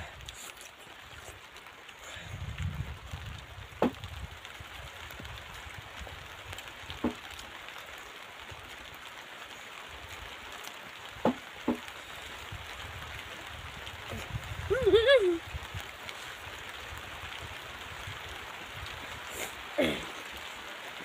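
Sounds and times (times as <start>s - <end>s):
mouth sounds of eating: 0.0s - 1.4s
outdoor background hiss: 0.0s - 21.0s.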